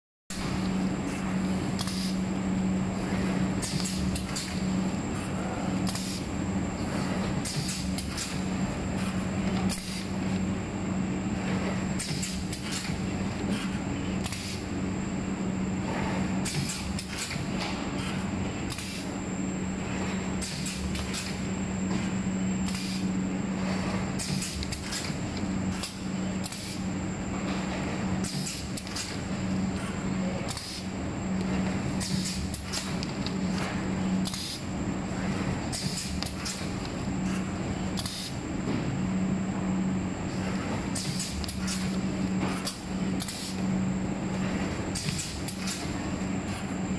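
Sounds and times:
machine hum: 0:00.3 - 0:46.9
pneumatic air hisses: 0:22.7 - 0:23.1, 0:34.2 - 0:34.6, 0:35.7 - 0:36.6, 0:38.0 - 0:38.4, 0:41.0 - 0:41.9.

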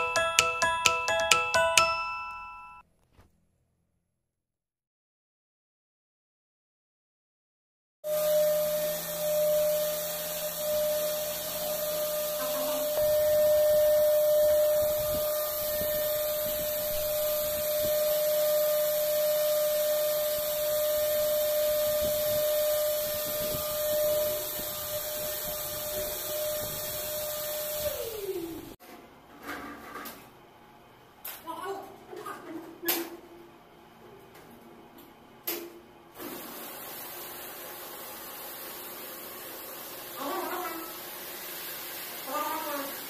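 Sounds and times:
vacuum cleaner running: 0:08.0 - 0:28.8, 0:36.1 - 0:43.0.

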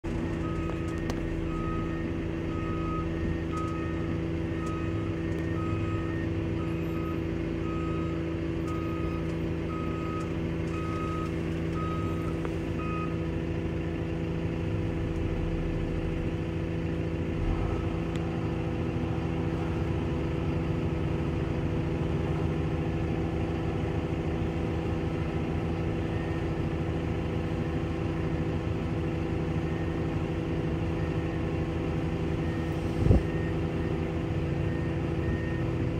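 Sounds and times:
diesel engine drone: 0:00.0 - 0:35.9
truck engine working: 0:00.0 - 0:35.9
reversing alarm beeping: 0:00.2 - 0:13.3, 0:32.3 - 0:35.9.

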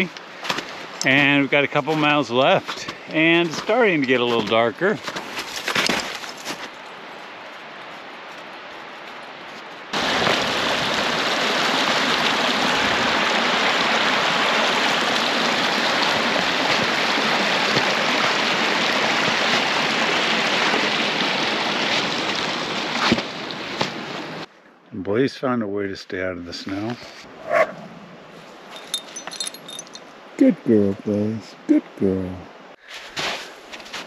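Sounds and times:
mountain brook rushing: 0:00.0 - 0:09.1, 0:09.7 - 0:24.5.

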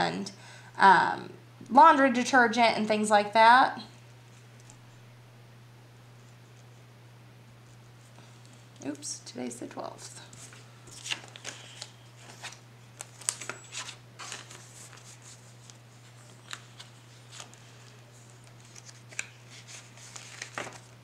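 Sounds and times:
paper and plastic rustling: 0:10.3 - 0:21.0.

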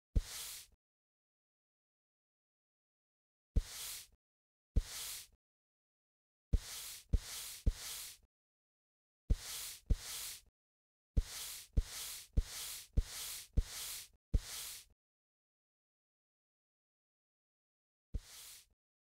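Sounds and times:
dull thump with hiss: 0:00.2 - 0:00.7, 0:03.6 - 0:04.1, 0:04.8 - 0:05.3, 0:09.3 - 0:10.4, 0:18.2 - 0:18.7.

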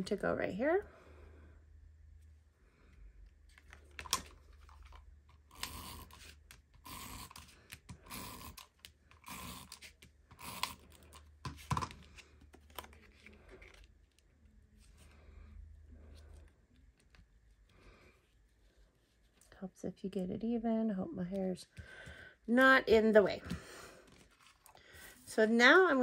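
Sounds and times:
tape runner strokes on paper: 0:05.5 - 0:11.8.

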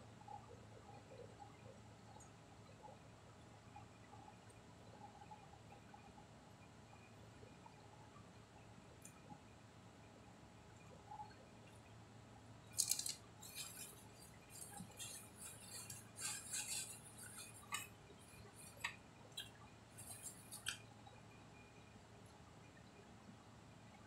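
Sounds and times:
crinkly rustles of food: 0:12.7 - 0:20.9.

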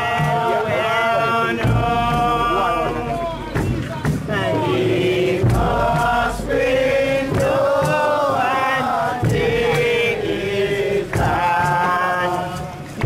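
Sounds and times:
group chanting: 0:00.0 - 0:13.0
low thumps: 0:01.5 - 0:11.4.

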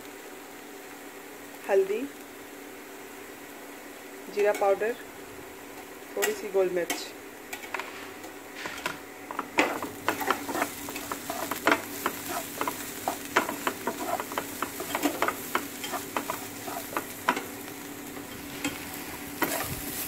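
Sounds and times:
sizzle of frying: 0:00.0 - 0:20.0
wooden spatula scraping a pan: 0:07.7 - 0:17.1, 0:19.4 - 0:20.0.

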